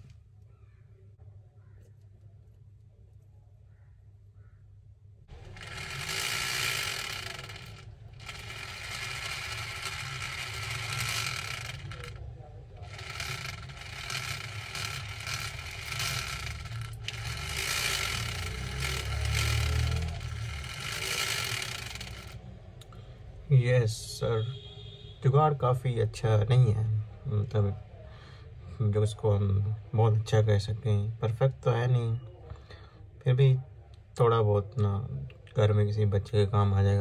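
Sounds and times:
toy motor and gearbox whine: 0:05.3 - 0:22.4.

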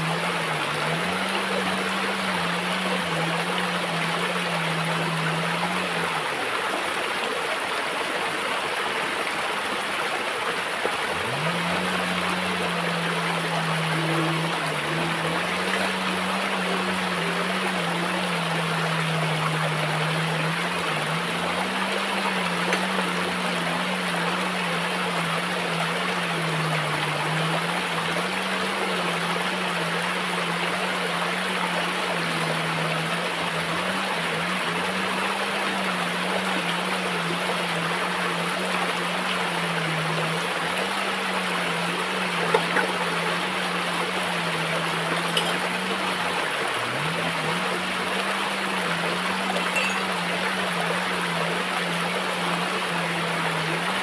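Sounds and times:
stream running over rocks: 0:00.0 - 0:54.0
low hum: 0:11.1 - 0:40.7.

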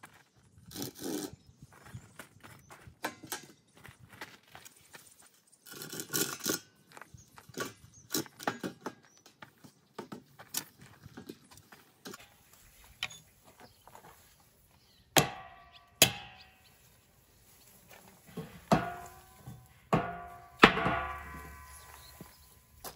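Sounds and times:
sledgehammer blows on wooden post: 0:15.2 - 0:16.6, 0:18.4 - 0:22.3
knocks and scrapes of wooden frame: 0:17.8 - 0:22.2.

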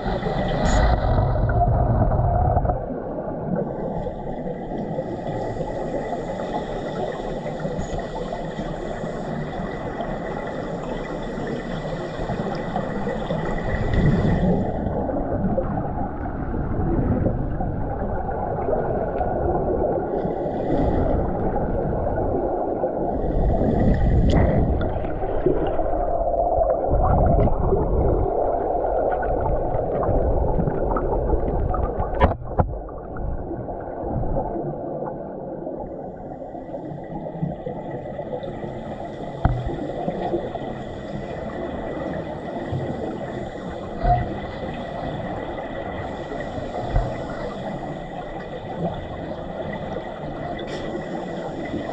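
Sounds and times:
underwater rushing rumble: 0:00.0 - 0:06.2, 0:09.0 - 0:36.7.

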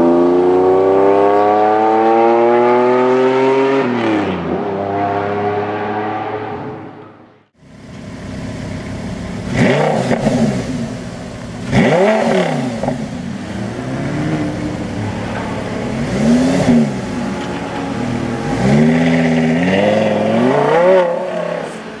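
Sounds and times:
sports car engine revving: 0:07.9 - 0:22.0.

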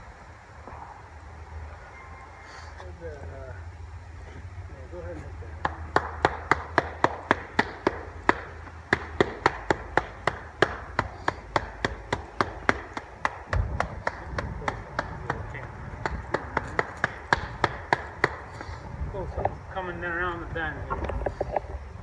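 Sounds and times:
stamp mat tapping on concrete: 0:05.6 - 0:18.8.

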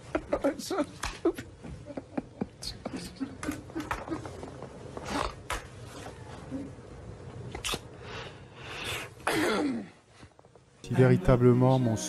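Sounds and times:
man giggling: 0:00.0 - 0:04.5.

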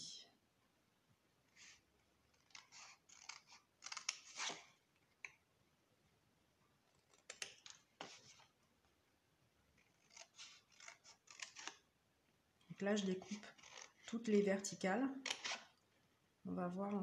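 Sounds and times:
scissors snipping cardstock: 0:02.3 - 0:04.8, 0:07.0 - 0:08.4, 0:09.8 - 0:11.8, 0:12.7 - 0:14.4, 0:15.2 - 0:15.7.

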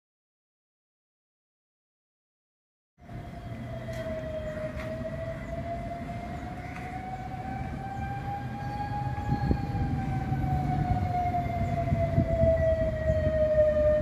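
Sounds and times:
steady engine whine: 0:03.0 - 0:14.0.

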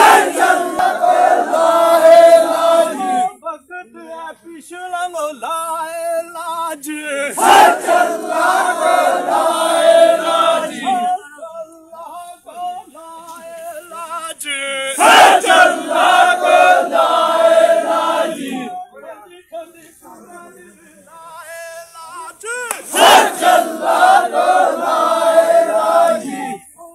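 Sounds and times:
crowd of men shouting in unison: 0:00.0 - 0:03.3, 0:07.2 - 0:11.1, 0:15.0 - 0:18.8, 0:22.7 - 0:26.6.

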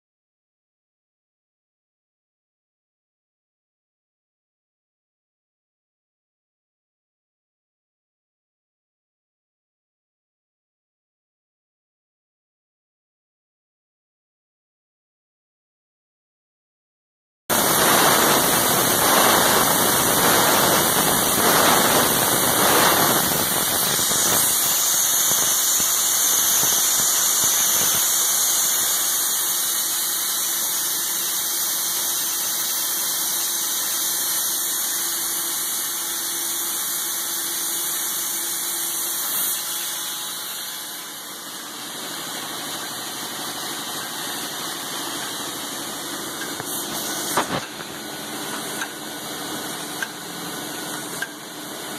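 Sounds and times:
airy hiss: 0:17.6 - 0:29.8.

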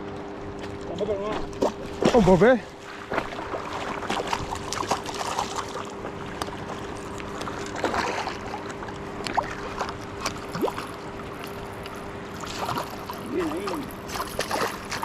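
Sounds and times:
water sloshing: 0:00.4 - 0:15.0
fish thrashing and splashing: 0:00.7 - 0:15.0.

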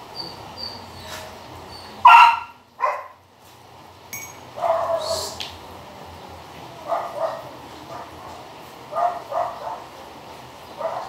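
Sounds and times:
dog yelping: 0:02.0 - 0:03.2, 0:04.6 - 0:05.2.

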